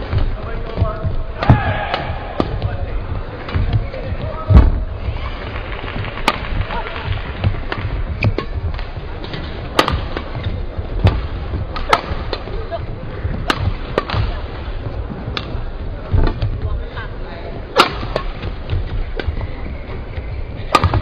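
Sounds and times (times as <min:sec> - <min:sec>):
steady arena rumble: 0:00.0 - 0:21.0
badminton racket hitting shuttlecock: 0:07.7 - 0:10.4, 0:11.0 - 0:12.5, 0:13.4 - 0:14.3, 0:17.7 - 0:18.4.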